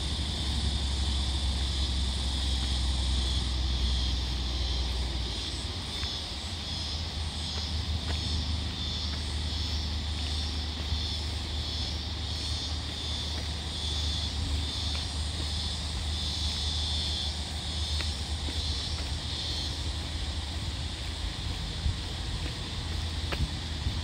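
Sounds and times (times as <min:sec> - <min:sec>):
wind rumble on microphone: 0:18.2 - 0:24.0.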